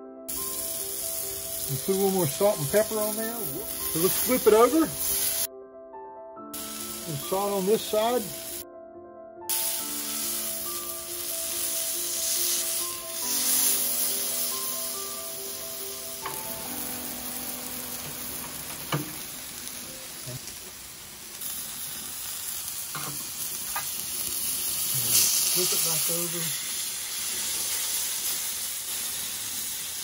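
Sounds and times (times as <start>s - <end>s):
soft background music: 0.0s - 22.4s
beef sizzling on griddle: 0.3s - 5.5s, 6.6s - 8.6s, 9.5s - 30.0s.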